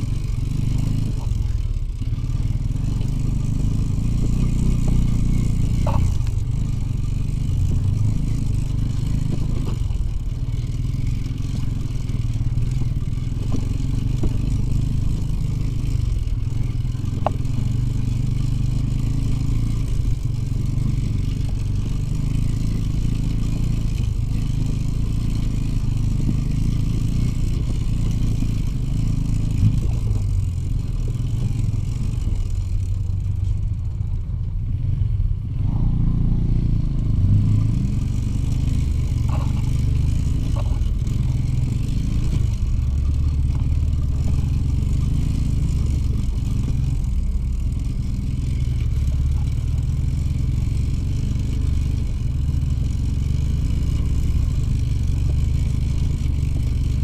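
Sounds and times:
two-stroke motorcycle engine running: 0.0s - 57.0s.

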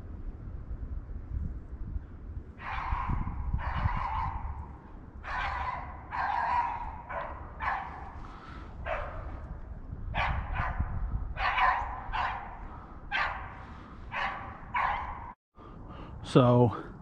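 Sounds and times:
dog barking: 2.6s - 4.6s, 5.2s - 8.2s, 8.8s - 9.4s, 10.2s - 15.4s.

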